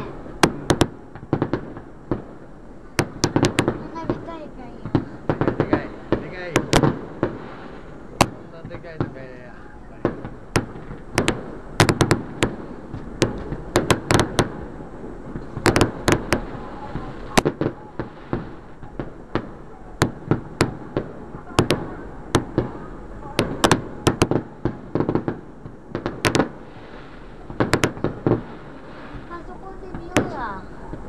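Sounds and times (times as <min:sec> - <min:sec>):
firework shells bursting: 0:10.0 - 0:14.7, 0:15.3 - 0:22.8, 0:23.4 - 0:31.0.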